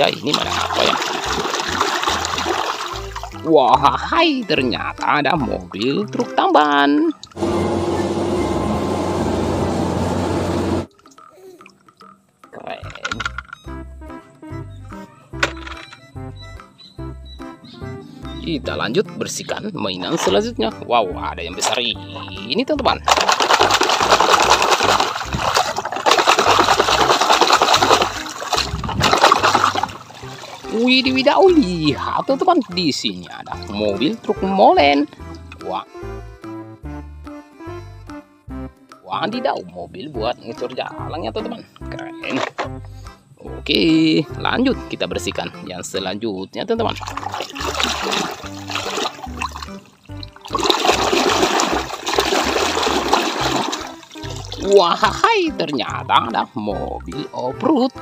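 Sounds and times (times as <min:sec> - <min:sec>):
water splashing and sloshing: 0:00.0 - 0:03.5, 0:20.0 - 0:20.5, 0:22.9 - 0:34.5, 0:46.9 - 0:55.3.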